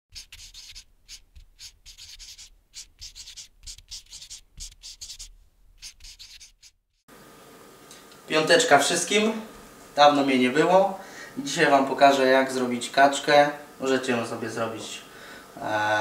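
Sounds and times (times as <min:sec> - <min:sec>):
pencil scratching on paper: 0:00.1 - 0:06.8.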